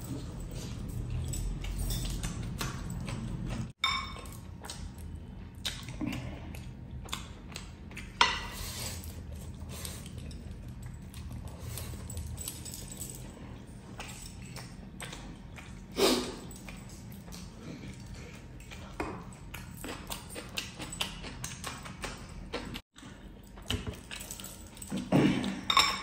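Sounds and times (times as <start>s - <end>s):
metal rings and bracelets clinking: 0.0s - 3.1s, 10.2s - 13.4s, 24.0s - 25.1s
wet squelching and chewing: 0.0s - 25.7s.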